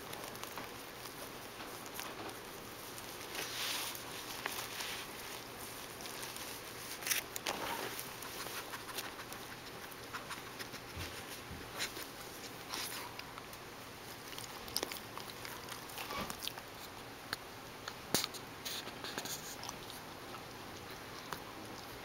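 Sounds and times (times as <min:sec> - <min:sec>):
paws scratching plastic tube: 0:00.0 - 0:13.4.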